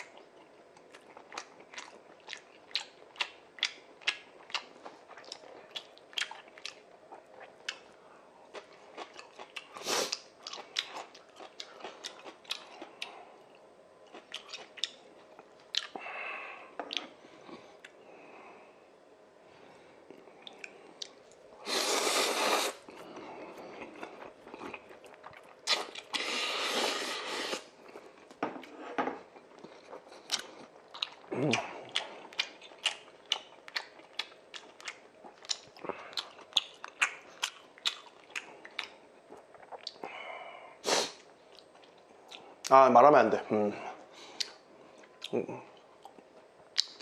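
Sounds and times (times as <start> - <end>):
wet chewing: 0.0 - 16.0, 22.4 - 28.3, 29.3 - 40.1, 44.3 - 47.0
person slurping noodles: 21.6 - 22.9, 25.7 - 27.7, 40.8 - 41.2.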